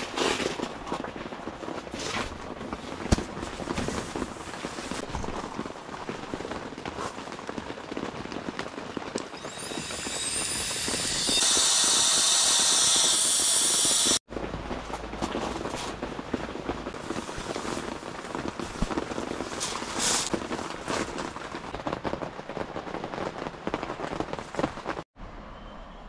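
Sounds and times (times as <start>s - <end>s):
rain pattering: 0.6s - 10.1s, 14.3s - 25.0s
rising hiss into whoosh: 9.6s - 14.2s.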